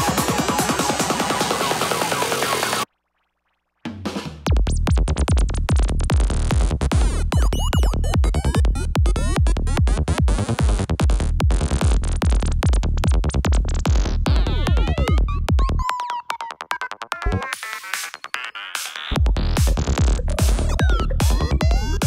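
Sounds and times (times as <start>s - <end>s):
rolling bassline: 3.9s - 15.9s, 18.8s - 22.0s
kick drum: 4.4s - 15.9s, 19.1s - 22.0s.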